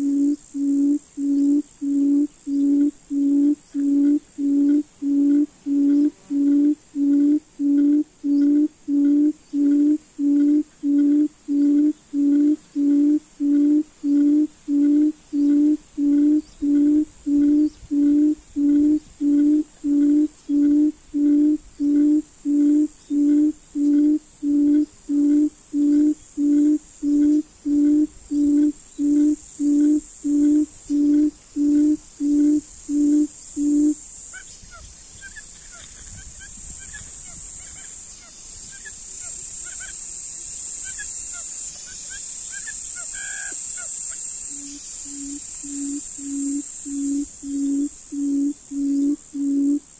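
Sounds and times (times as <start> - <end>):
quail booming hoot: 0.0 - 34.0, 44.6 - 49.9
faint bird chirps: 0.0 - 49.9
high insect hiss: 0.0 - 49.9.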